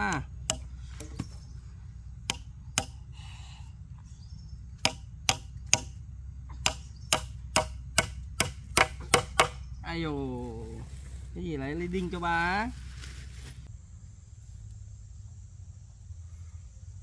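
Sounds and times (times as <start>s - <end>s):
hammer striking nails into wood: 2.3s - 3.0s, 4.8s - 6.0s, 6.6s - 9.6s.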